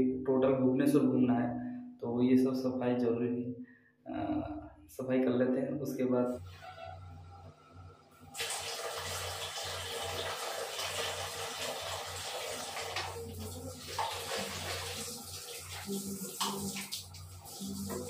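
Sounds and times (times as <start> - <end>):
tap water running into bucket: 8.3 - 18.0.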